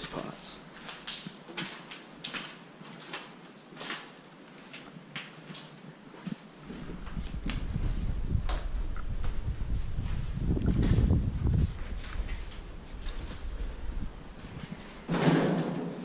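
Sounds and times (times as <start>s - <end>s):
footsteps crunching over debris: 0.0s - 16.0s
gusty wind on microphone: 6.6s - 15.1s.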